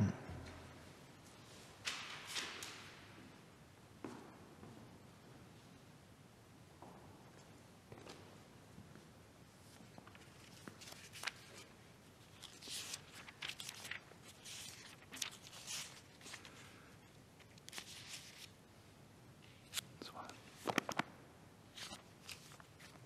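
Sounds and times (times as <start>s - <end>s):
soft rustling and shuffling: 6.8s - 18.5s.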